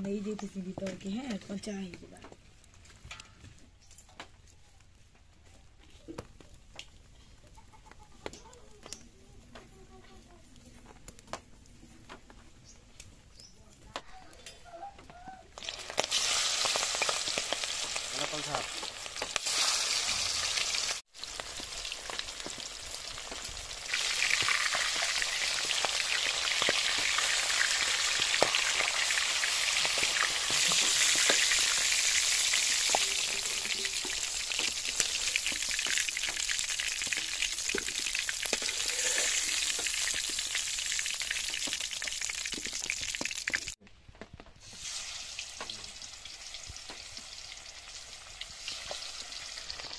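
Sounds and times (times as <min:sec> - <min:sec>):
fish sizzling in hot oil: 0:15.6 - 0:43.8, 0:44.6 - 0:49.9.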